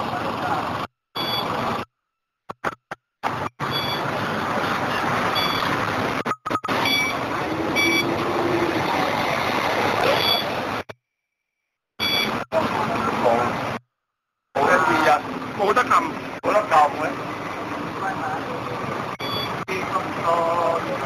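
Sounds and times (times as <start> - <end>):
bus engine running: 0.0 - 1.9, 2.5 - 10.9, 12.0 - 13.8, 14.6 - 21.0
card reader beeps: 1.2 - 1.5, 3.7 - 4.0, 5.4 - 7.2, 7.8 - 8.1, 10.1 - 10.5, 12.0 - 12.4, 19.2 - 19.6.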